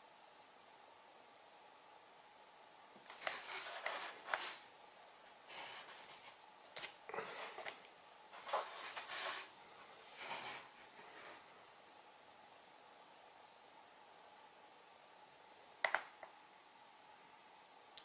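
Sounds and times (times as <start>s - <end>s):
hands rustling wires: 2.9s - 11.8s.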